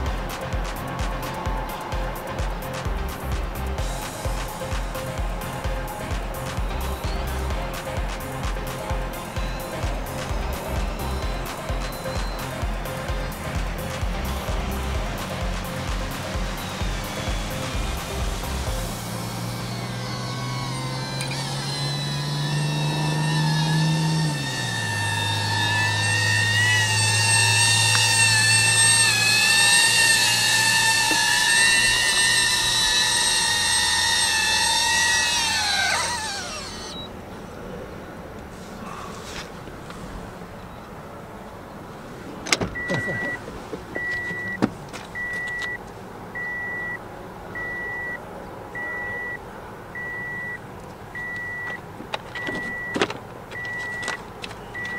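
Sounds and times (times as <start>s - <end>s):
drone propellers whining: 0.0s - 40.9s, 42.2s - 45.8s, 51.2s - 54.9s
car warning chime beeping: 9.1s - 13.3s, 42.5s - 43.4s, 44.0s - 45.8s, 46.4s - 47.0s, 47.6s - 54.9s.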